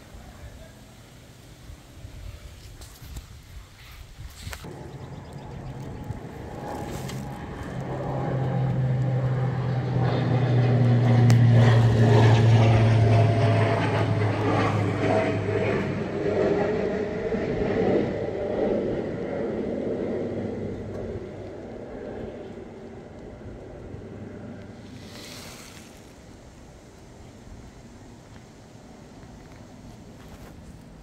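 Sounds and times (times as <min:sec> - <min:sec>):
engine drone passing by: 0:04.6 - 0:31.0.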